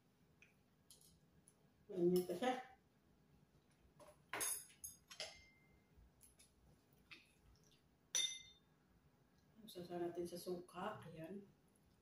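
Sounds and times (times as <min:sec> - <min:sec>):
cutlery clinking on a plate: 0:04.3 - 0:05.6, 0:08.2 - 0:08.6.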